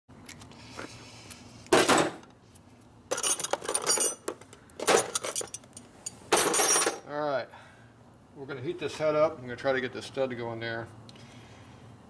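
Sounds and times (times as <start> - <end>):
metal parts clinking in plastic bin: 3.1 - 5.6, 6.3 - 7.0.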